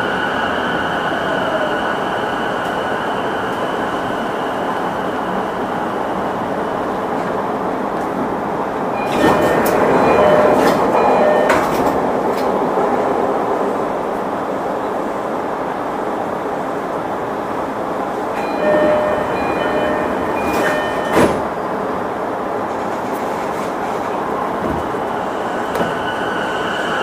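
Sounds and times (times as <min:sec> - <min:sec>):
train doors opening air rush: 0:19.8 - 0:21.6, 0:22.5 - 0:27.0.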